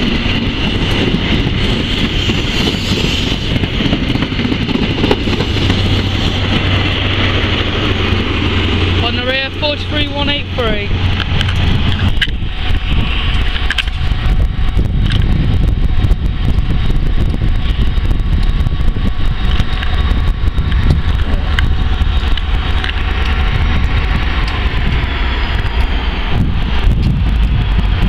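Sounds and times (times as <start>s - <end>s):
diesel locomotive engine rumbling: 0.0s - 28.0s
train wheel and rail noise: 0.0s - 28.0s.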